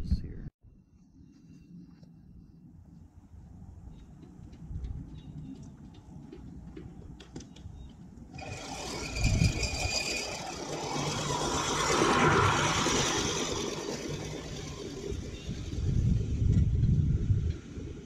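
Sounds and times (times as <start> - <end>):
reel mower cutting grass: 8.3 - 16.3.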